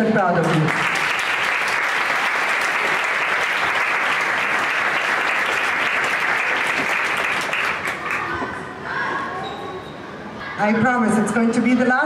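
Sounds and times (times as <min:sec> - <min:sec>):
audience applauding: 0:00.4 - 0:08.4.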